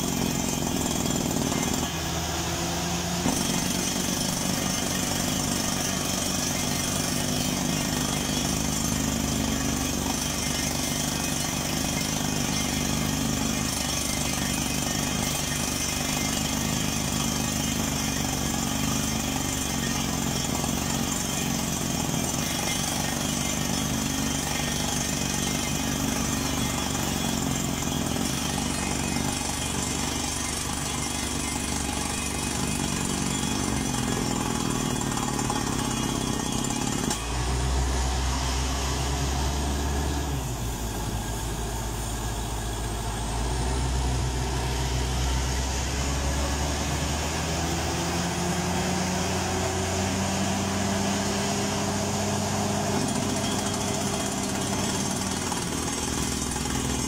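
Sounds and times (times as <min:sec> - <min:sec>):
air hammer pounding rock: 0:00.0 - 0:37.5, 0:49.2 - 0:57.0.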